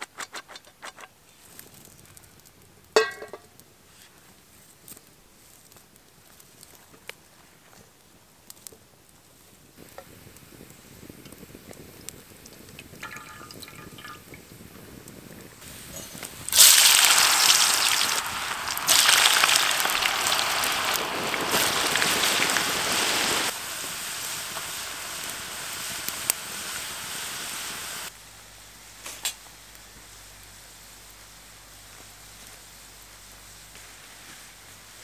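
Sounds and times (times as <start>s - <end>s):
potatoes sizzling in hot oil: 14.6s - 28.2s, 28.8s - 35.0s.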